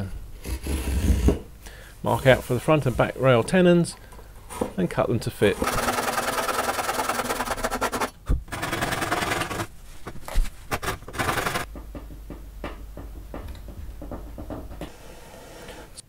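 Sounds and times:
hand saw cutting wood: 5.6 - 9.7, 10.8 - 11.7.

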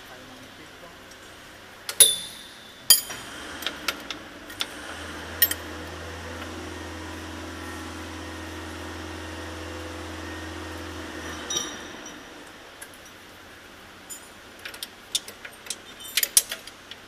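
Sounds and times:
electric motor humming: 3.1 - 12.8.

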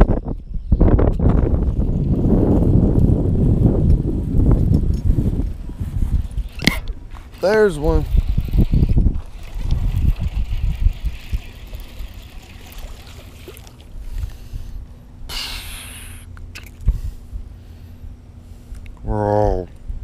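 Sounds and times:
wind buffeting microphone: 0.0 - 15.0
short hiss: 15.3 - 16.3.

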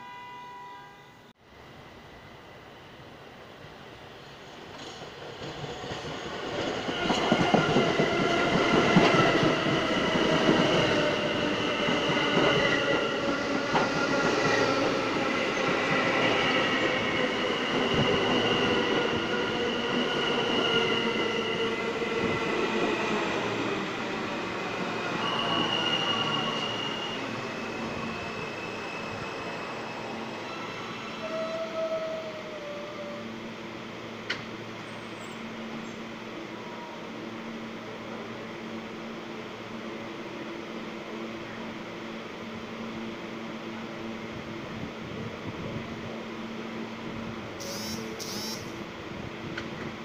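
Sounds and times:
subway train rumbling: 0.0 - 50.0
wheels and brakes squealing: 25.0 - 32.1.

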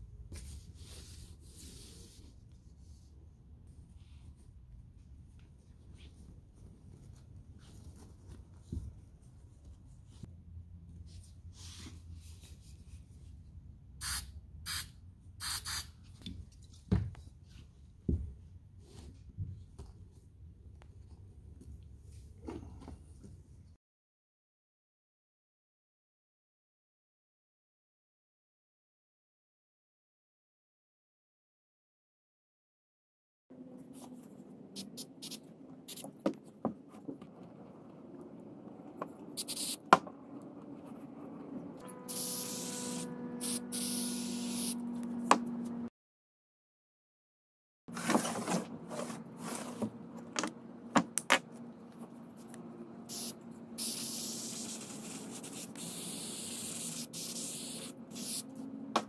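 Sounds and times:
aerosol spray can hissing: 14.0 - 15.9, 39.4 - 39.8, 42.1 - 42.7, 43.4 - 44.8, 53.1 - 58.5.

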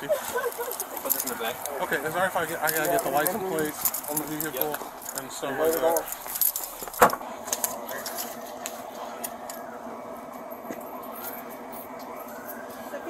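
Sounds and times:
steady engine hum: 0.0 - 13.0
metallic jingling and clicking: 0.3 - 7.0.

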